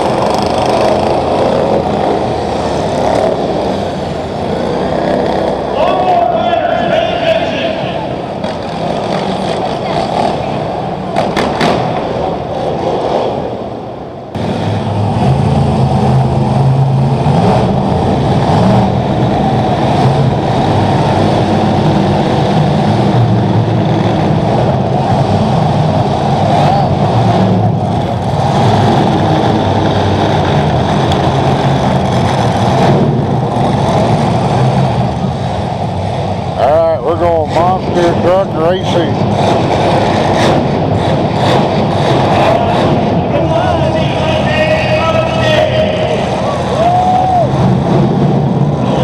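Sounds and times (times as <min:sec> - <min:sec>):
quiet vehicle noise: 0:00.0 - 0:49.0
truck engines revving: 0:00.0 - 0:49.0.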